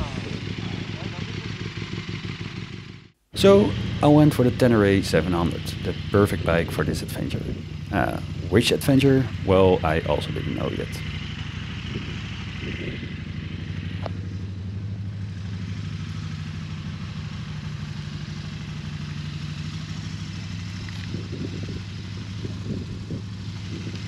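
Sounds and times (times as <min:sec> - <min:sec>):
motorcycle engine idling: 0:00.0 - 0:24.0.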